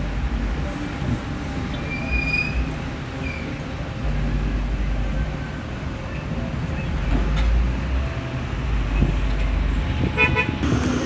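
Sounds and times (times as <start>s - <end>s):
heavy truck rumble: 0.0s - 11.0s
high squeal: 1.8s - 3.6s.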